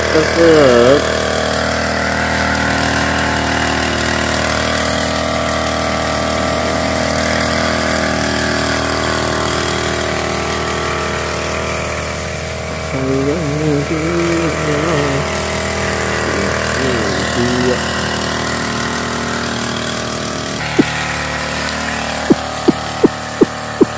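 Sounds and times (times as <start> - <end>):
small sprayer engine running: 0.0 - 23.9.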